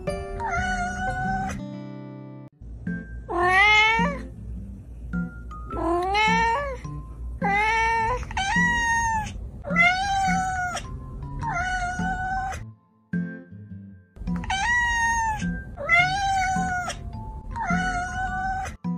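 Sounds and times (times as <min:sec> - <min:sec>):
background music with soft beat: 0:00.0 - 0:08.5
cat meowing: 0:00.4 - 0:01.6, 0:03.3 - 0:04.3, 0:05.7 - 0:06.8, 0:07.4 - 0:12.6, 0:14.3 - 0:18.8.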